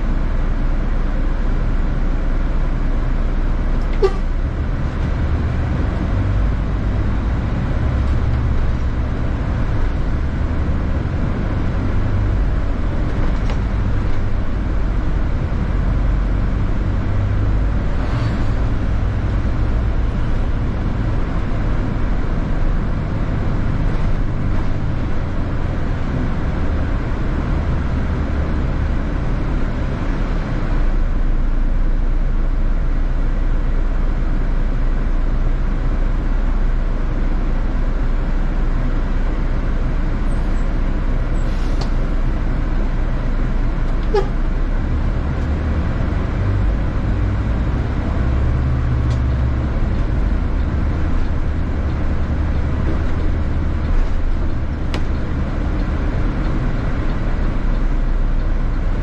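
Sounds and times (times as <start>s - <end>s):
bus engine drone: 0.0s - 59.0s
road rumble: 0.0s - 59.0s.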